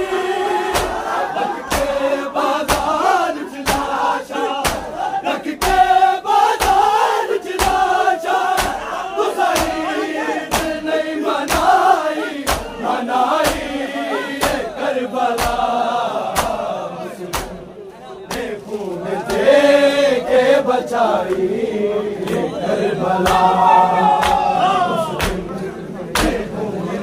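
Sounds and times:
men chanting together: 0.0 - 27.0
chest beating slaps: 0.7 - 4.0, 4.6 - 5.0, 5.6 - 5.9, 6.6 - 12.8, 13.4 - 13.8, 14.4 - 14.7, 15.3 - 15.7, 16.3 - 16.6, 17.3 - 17.6, 25.2 - 25.5.

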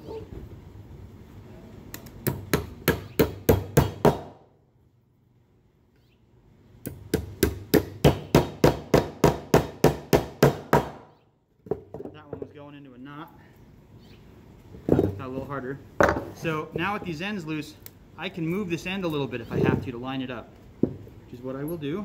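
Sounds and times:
hammer driving nails into wood: 2.0 - 4.4, 6.9 - 11.1.

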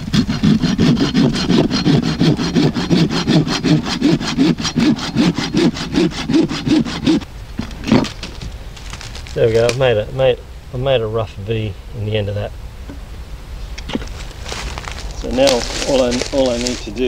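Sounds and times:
saw cutting wood: 0.0 - 7.3, 15.2 - 17.0.

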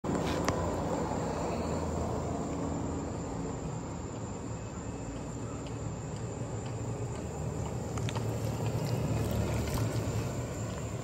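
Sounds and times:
golf cart humming: 0.0 - 11.0
insects trilling: 0.4 - 11.0.

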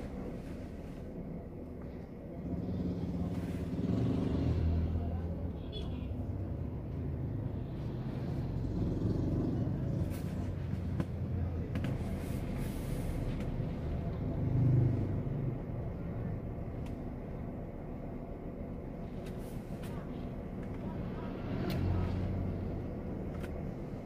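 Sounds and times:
engine rumble: 0.0 - 24.0
motorbikes and cars passing: 2.5 - 5.6, 6.2 - 11.5, 13.8 - 15.9.

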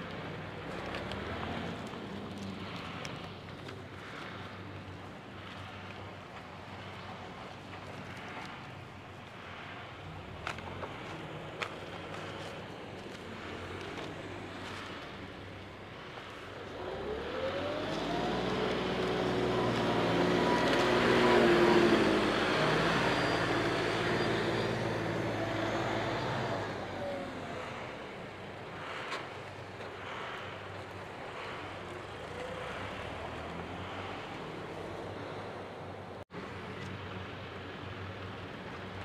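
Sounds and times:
tractor diesel engine revving: 10.1 - 36.2.

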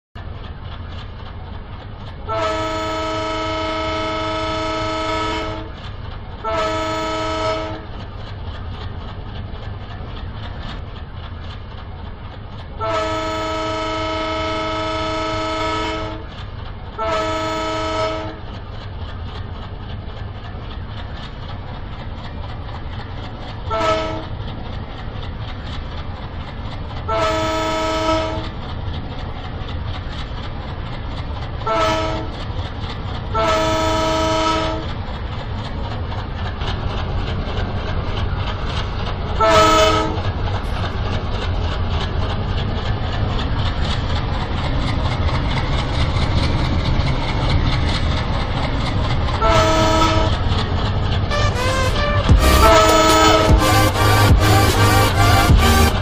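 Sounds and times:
low train rumble: 0.2 - 56.0
steam locomotive chime whistle: 51.3 - 56.0.

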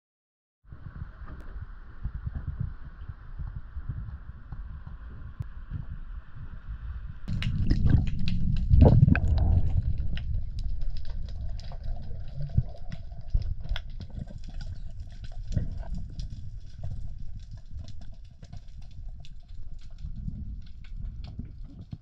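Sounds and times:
low rumble of moving water: 0.7 - 22.0
sharp clicks and crackles: 7.3 - 22.0.

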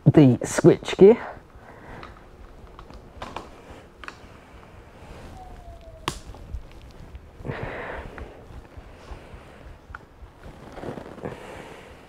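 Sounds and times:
short breathy rush: 7.4 - 12.0.

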